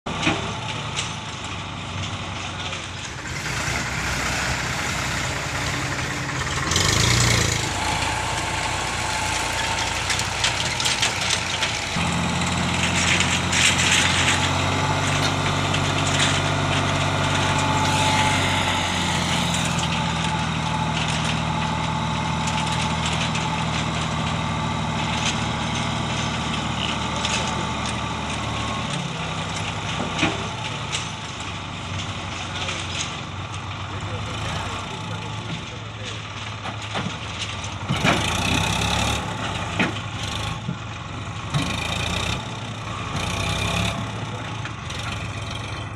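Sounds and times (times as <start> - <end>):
tractor diesel engine under load: 0.0 - 45.9.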